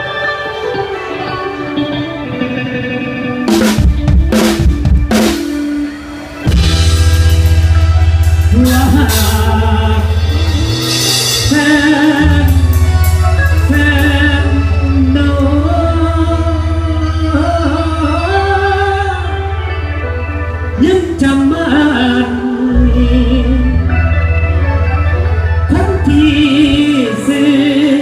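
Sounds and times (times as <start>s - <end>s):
person singing: 0.0s - 28.0s
heavy steady bass: 6.5s - 27.3s.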